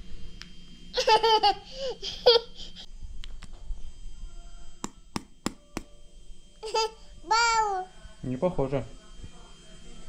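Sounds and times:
young child giggling: 1.0s - 2.9s.

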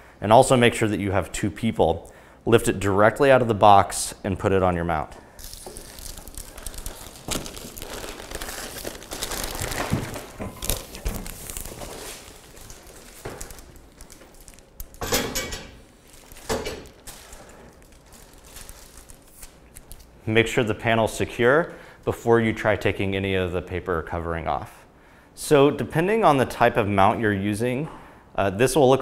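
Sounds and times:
plastic packaging crinkling: 5.3s - 20.2s.

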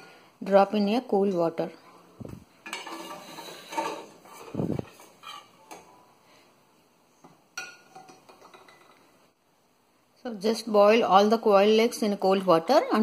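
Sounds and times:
metal spoon scraping cooking pot: 2.6s - 5.7s.

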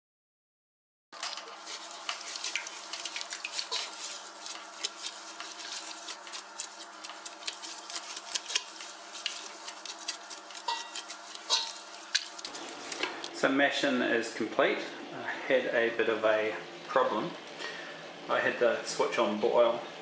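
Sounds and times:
wet gritty stirring: 1.2s - 13.4s.

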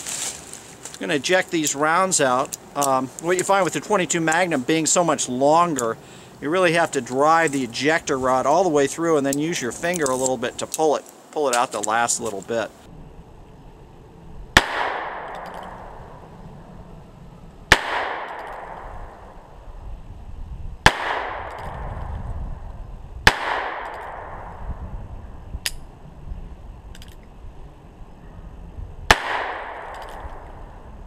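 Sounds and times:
echo off woods: 0.8s - 19.6s, 20.8s - 22.4s, 23.2s - 24.9s, 29.1s - 31.0s
revolver hammer cocking clicks: 29.2s - 30.5s.

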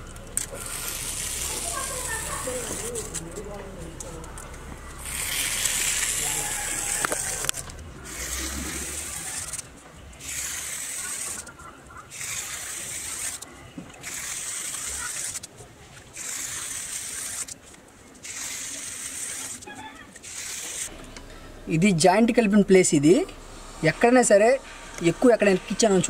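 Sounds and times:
comb tool scraping wet plaster: 10.2s - 15.5s, 16.1s - 17.6s, 18.2s - 19.6s.

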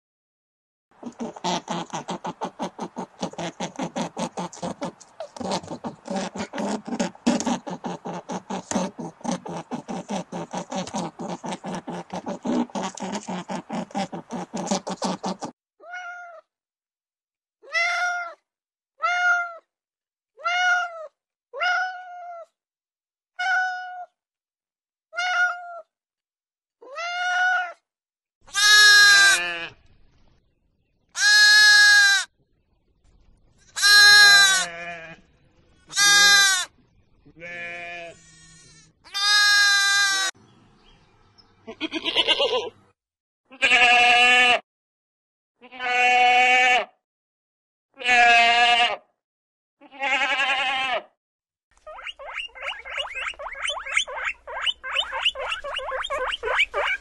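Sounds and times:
cat meowing: 15.8s - 16.5s, 19.0s - 19.6s, 20.4s - 22.5s, 25.2s - 25.8s
sheep and goats bleating: 28.5s - 29.8s, 31.2s - 32.3s, 33.8s - 35.2s, 35.9s - 36.7s, 37.4s - 40.3s, 41.7s - 42.7s, 43.5s - 44.6s, 45.6s - 46.9s, 48.0s - 49.0s, 49.8s - 51.1s.

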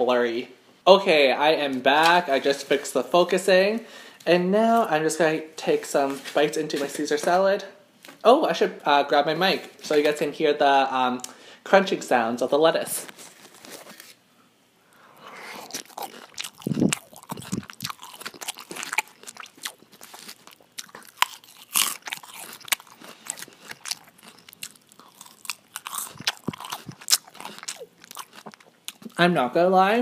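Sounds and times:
lettuce crunching while chewed: 15.2s - 29.2s.

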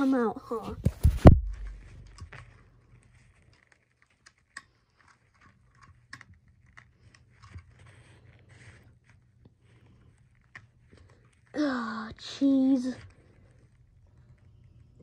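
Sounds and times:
low steady hum: 0.0s - 15.0s
thump: 0.8s - 2.0s
faint clicks and knocks: 0.8s - 11.5s.

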